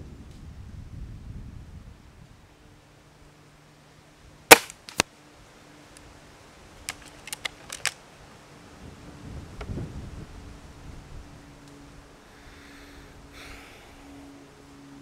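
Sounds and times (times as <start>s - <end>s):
air rifle cracks: 4.5s - 5.1s, 6.9s - 8.0s.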